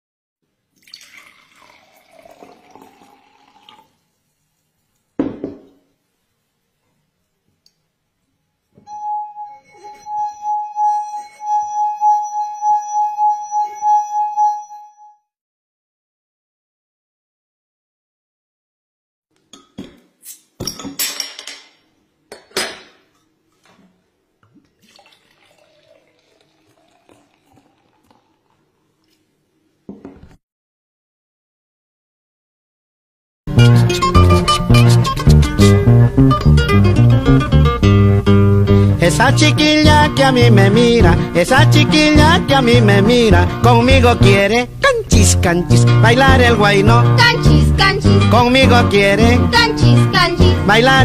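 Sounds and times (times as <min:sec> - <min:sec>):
water pouring into glass: 0:00.8 - 0:04.1, 0:24.6 - 0:29.1.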